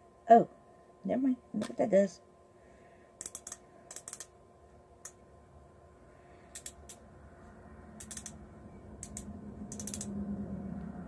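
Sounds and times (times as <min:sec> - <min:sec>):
low hum: 0:00.0 - 0:11.0
plastic pen clicks: 0:09.0 - 0:10.1.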